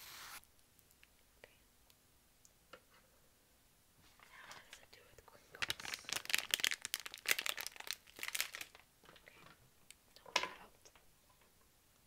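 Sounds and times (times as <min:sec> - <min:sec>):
plastic packet crinkling: 0:05.5 - 0:08.9.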